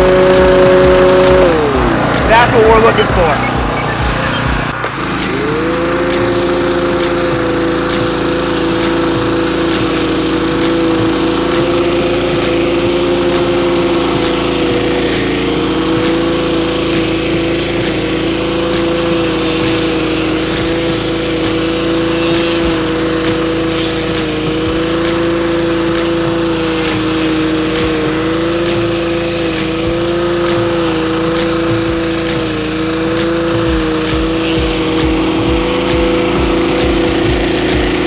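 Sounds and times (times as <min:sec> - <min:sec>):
water jet hissing on concrete: 0:00.0 - 0:03.3, 0:04.7 - 0:38.0
pressure washer engine running: 0:00.0 - 0:38.0.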